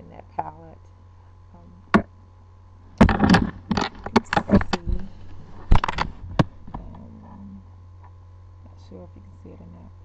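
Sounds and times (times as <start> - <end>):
faint mains hum: 0.0 - 10.0
camera handling bumps and scrapes: 3.0 - 6.5.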